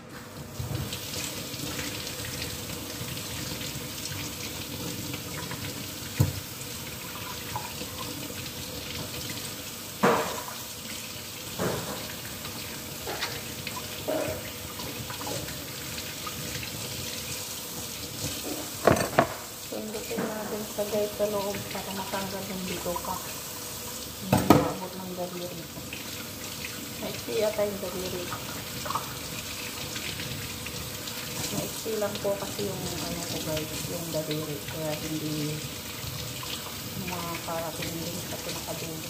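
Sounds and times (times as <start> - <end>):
tap water running: 0.0 - 39.0
sharp knocks in a sink: 10.0 - 10.5, 18.8 - 19.4.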